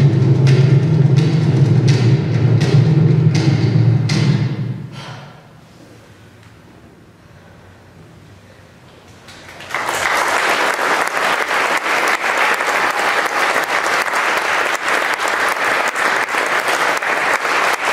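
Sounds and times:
crowd applauding: 0:09.2 - 0:17.9.

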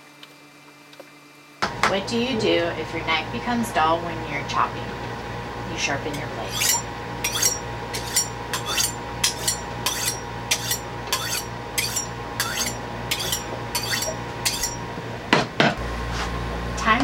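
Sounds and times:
knife scraping on steel rod: 0:06.3 - 0:14.9.

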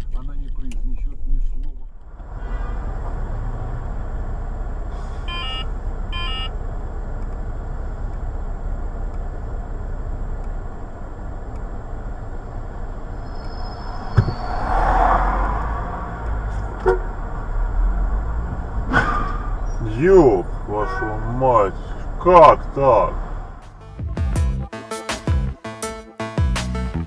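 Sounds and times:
idling traffic rumble: 0:00.0 - 0:24.7
short pitched beeps: 0:05.3 - 0:06.5.

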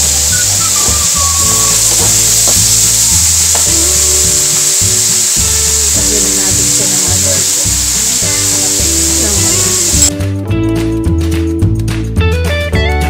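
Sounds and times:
vegetables sizzling in hot oil: 0:00.0 - 0:10.1.

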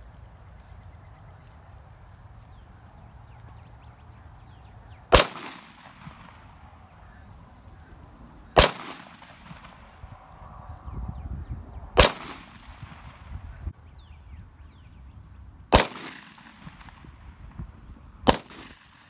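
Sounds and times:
pistol shots with echo: 0:05.1 - 0:06.6, 0:08.6 - 0:10.0, 0:12.0 - 0:13.3, 0:15.7 - 0:17.2, 0:18.2 - 0:19.0.

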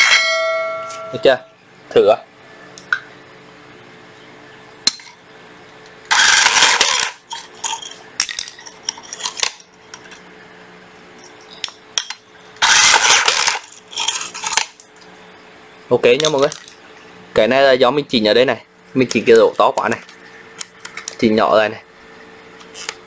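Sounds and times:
rebar tying tool motor and wire clatter: 0:06.1 - 0:10.3, 0:11.2 - 0:14.9, 0:22.6 - 0:23.0.

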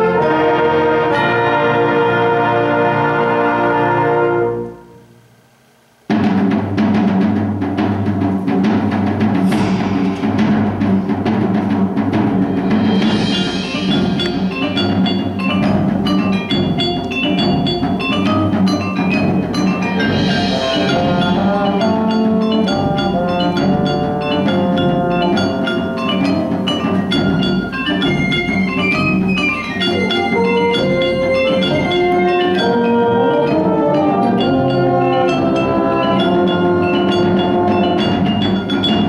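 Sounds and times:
percussion strikes: 0:06.1 - 0:39.0
ensemble playing: 0:09.2 - 0:39.0.

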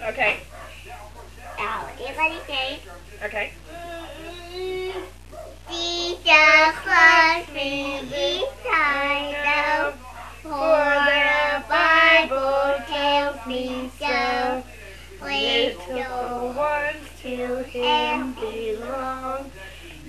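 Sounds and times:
girl singing: 0:05.7 - 0:14.6, 0:15.2 - 0:19.5.

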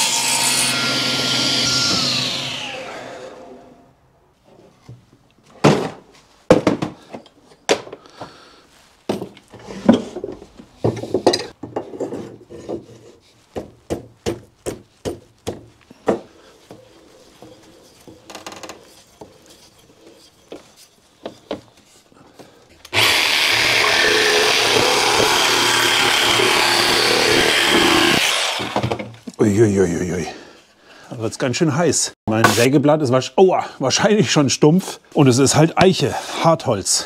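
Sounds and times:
jigsaw cutting wood: 0:00.0 - 0:03.6, 0:22.9 - 0:29.0
wooden boards knocking: 0:05.6 - 0:07.0, 0:13.6 - 0:16.3.

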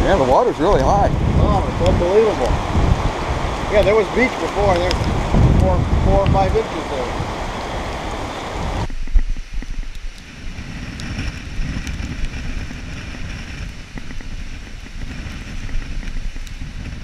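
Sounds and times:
rain hissing: 0:00.0 - 0:17.0
wind on microphone: 0:00.0 - 0:17.0
firewood knocking: 0:03.6 - 0:06.4.

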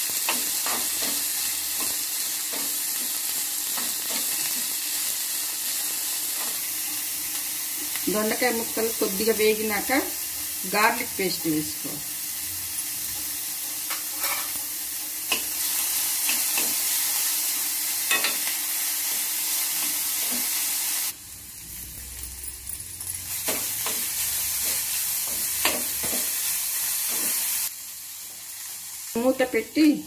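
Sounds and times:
vegetables sizzling in hot oil: 0:00.0 - 0:30.0
spoon scraping metal pan: 0:13.9 - 0:14.6.

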